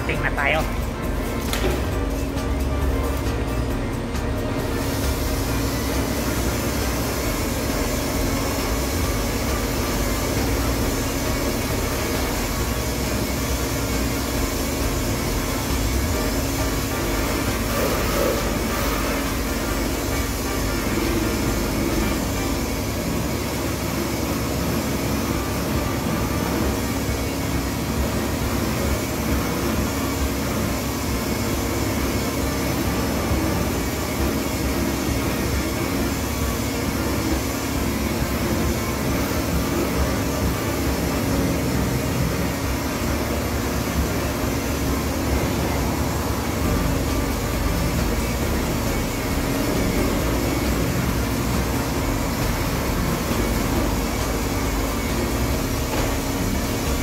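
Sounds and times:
electric polisher running: 0:04.7 - 0:24.8.

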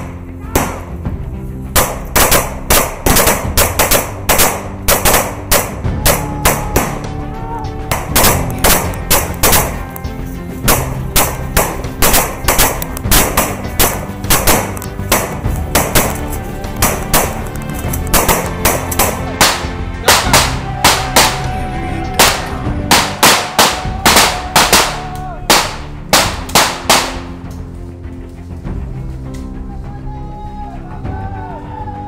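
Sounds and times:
background music with low notes: 0:00.0 - 0:32.0
rapid rifle gunfire: 0:01.8 - 0:05.8, 0:07.9 - 0:09.8, 0:10.7 - 0:16.2, 0:22.2 - 0:27.3.

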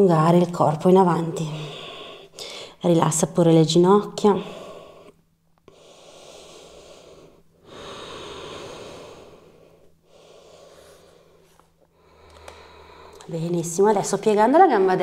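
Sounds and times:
slow audible breathing: 0:01.5 - 0:02.8, 0:04.4 - 0:13.3.

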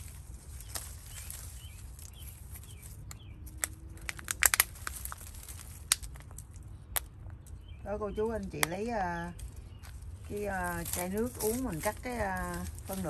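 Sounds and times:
low steady rumble: 0:00.0 - 0:13.0
clicks and snaps of handling: 0:00.6 - 0:07.8.

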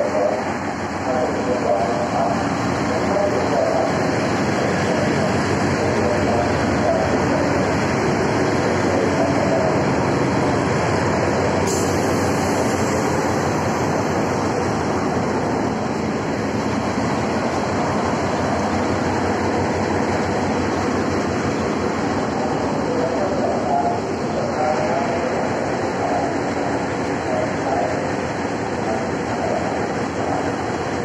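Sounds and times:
locomotive engine rumble: 0:00.0 - 0:31.0.

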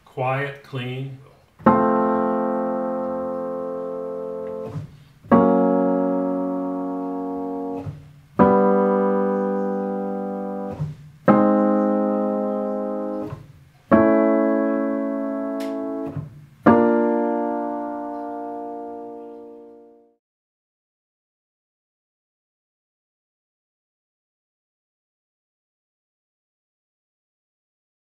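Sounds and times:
piano major chords: 0:00.0 - 0:20.2.

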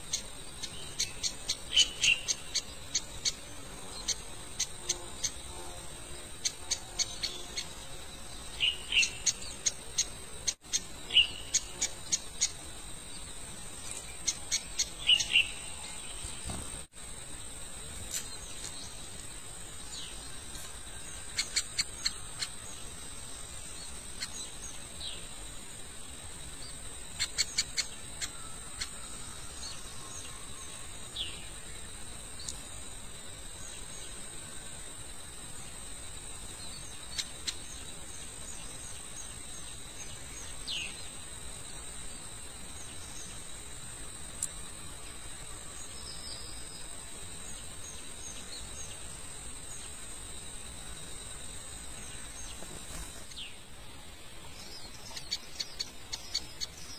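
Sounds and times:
small birds chirping: 0:00.0 - 0:16.9, 0:17.9 - 0:32.8, 0:35.6 - 0:56.9
birds sharp ticks: 0:55.1 - 0:56.8.

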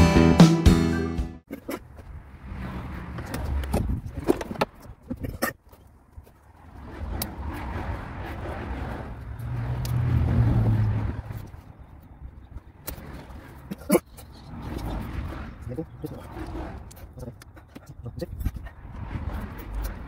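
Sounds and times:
passing car rumble: 0:01.8 - 0:20.0.

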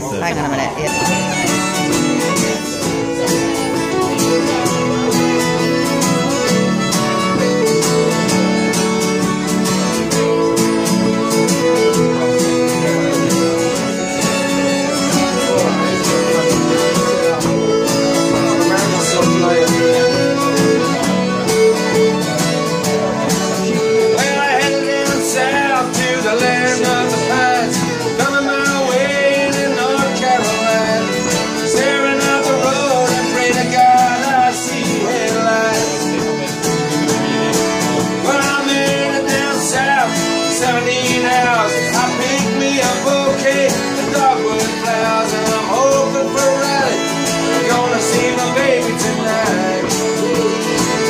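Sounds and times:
folk tune on fiddle and accordions: 0:00.1 - 0:51.0.

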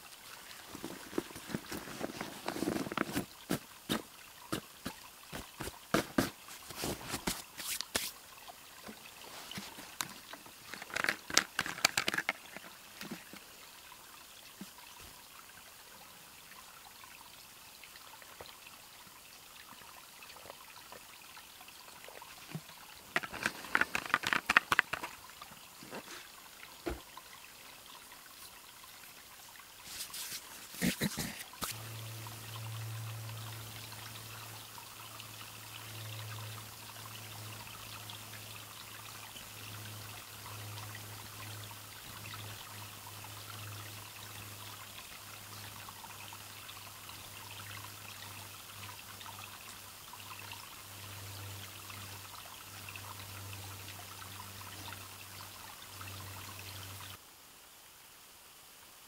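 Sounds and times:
creek trickling: 0:00.0 - 0:59.0
gear rustling in backpack: 0:00.7 - 0:04.6.

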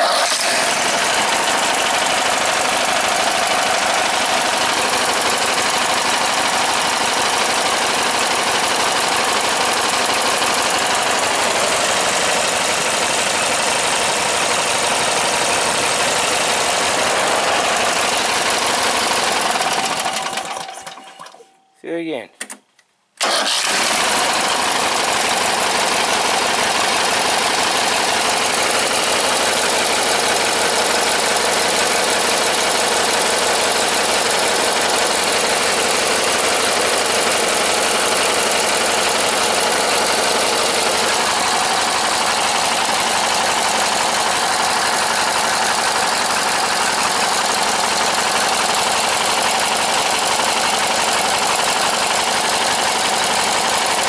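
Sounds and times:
riding mower engine running: 0:00.0 - 0:21.5, 0:23.2 - 0:54.0.

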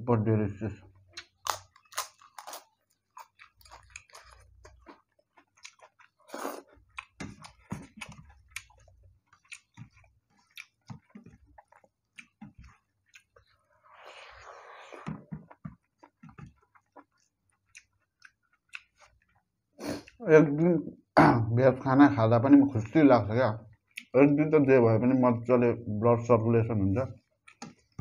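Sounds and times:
chewing with wet smacks and crunches: 0:00.8 - 0:20.2, 0:23.6 - 0:24.4, 0:27.0 - 0:28.0.

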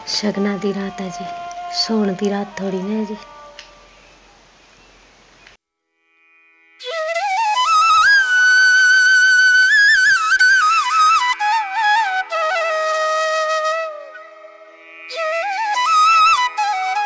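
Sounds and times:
slow solo melody over drone: 0:00.0 - 0:04.0.

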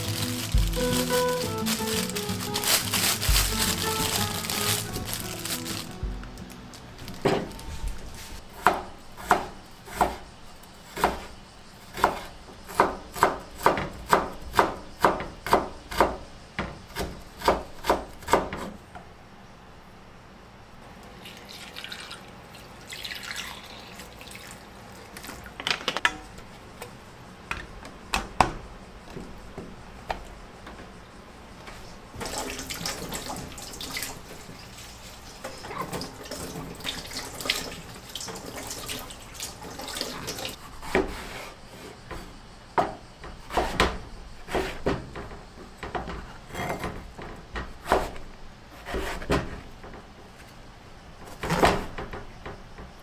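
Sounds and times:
water poured into glass dish: 0:21.2 - 0:24.6
water running: 0:21.2 - 0:25.5, 0:32.2 - 0:40.6.

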